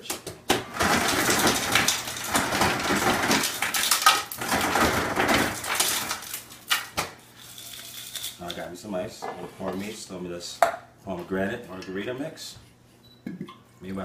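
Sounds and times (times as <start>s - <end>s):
ice clattering into metal shaker: 0.8s - 6.8s.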